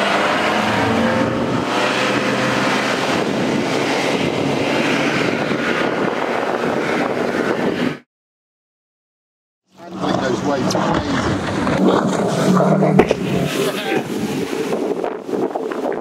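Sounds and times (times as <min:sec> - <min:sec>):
rushing water: 0:00.0 - 0:07.3, 0:09.8 - 0:16.0
outboard motors at high revs: 0:00.0 - 0:08.0, 0:09.8 - 0:16.0
wind on microphone: 0:00.0 - 0:08.1, 0:10.5 - 0:16.0.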